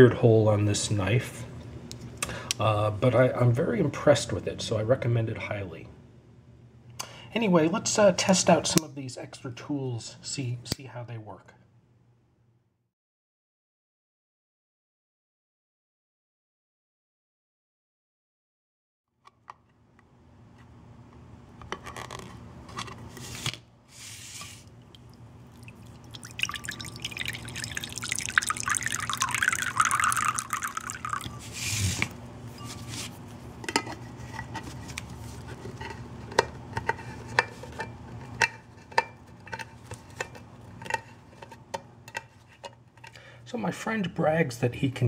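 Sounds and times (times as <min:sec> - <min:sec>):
water pouring into a ceramic bowl: 0:24.8 - 0:31.6.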